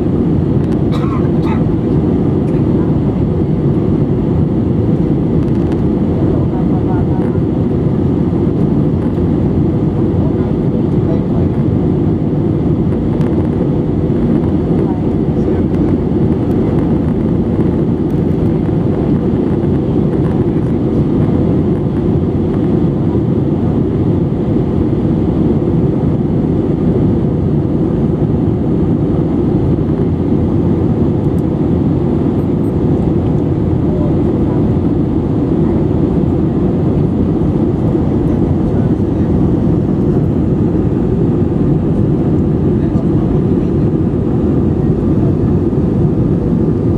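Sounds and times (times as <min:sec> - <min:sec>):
jet engines and airflow rush: 0:00.0 - 0:46.9.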